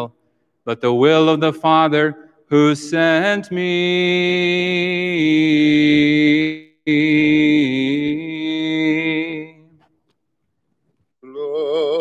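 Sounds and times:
man chanting: 0.7 - 9.6.

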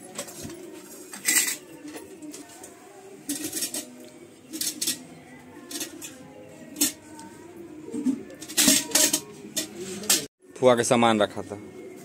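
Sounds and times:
metallic clinking and rattling: 8.4 - 10.3.

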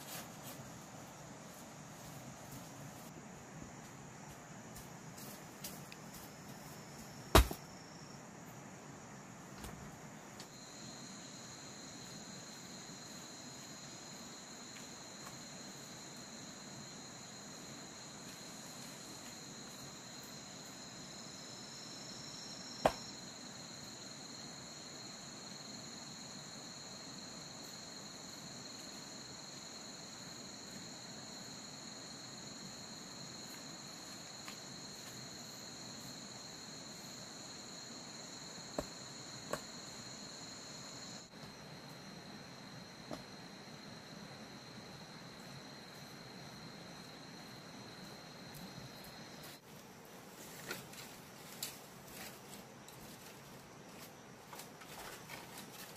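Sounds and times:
forest insects droning: 0.0 - 55.9
sharp knock: 7.3 - 7.6.

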